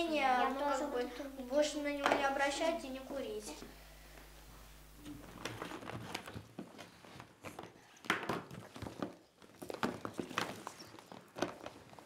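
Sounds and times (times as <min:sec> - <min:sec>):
cardboard packs clicking and rustling: 0:05.4 - 0:12.0.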